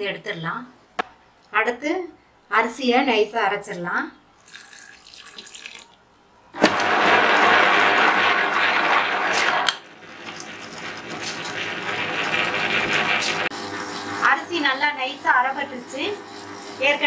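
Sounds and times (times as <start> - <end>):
wet grinder churning rice: 6.6 - 17.0.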